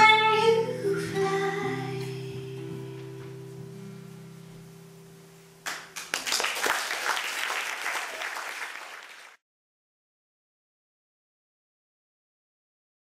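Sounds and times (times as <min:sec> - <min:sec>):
acoustic guitar chord ringing: 0:00.0 - 0:05.7
audience applause: 0:05.6 - 0:09.4.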